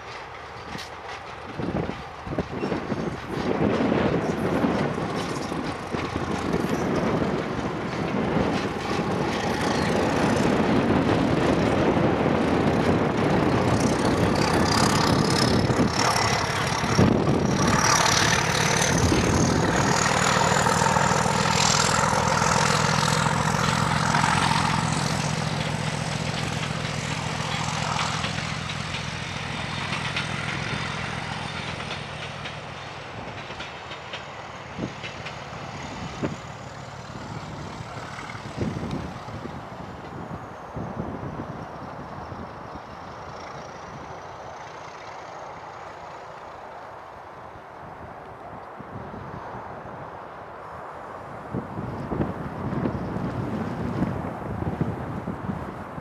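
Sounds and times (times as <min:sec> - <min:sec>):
diesel locomotive passing: 0:00.0 - 0:56.0.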